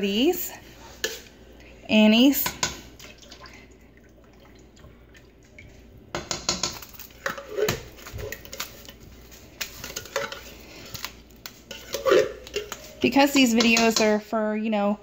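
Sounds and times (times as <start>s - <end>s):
metal spoon clinking against pot: 9.6s - 10.5s, 11.7s - 14.2s.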